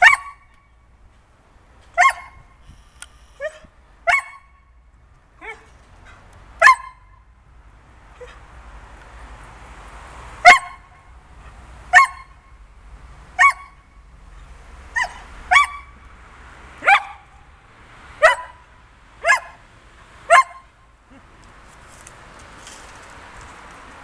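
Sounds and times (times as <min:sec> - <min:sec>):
dog barking: 0:02.0 - 0:02.4, 0:03.4 - 0:04.5, 0:06.6 - 0:07.0, 0:10.4 - 0:10.9, 0:11.9 - 0:12.4, 0:13.4 - 0:13.8, 0:15.0 - 0:15.9, 0:16.8 - 0:17.3, 0:18.2 - 0:18.6, 0:19.2 - 0:19.6, 0:20.3 - 0:20.6.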